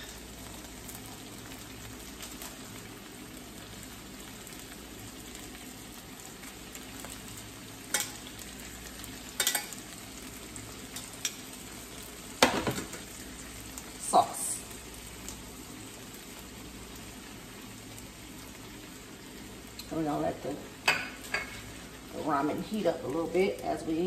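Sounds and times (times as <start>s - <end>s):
food sizzling in a frying pan: 0.0s - 24.0s
metal tongs clacking on a pot: 7.9s - 8.2s, 9.4s - 9.8s, 10.9s - 11.4s.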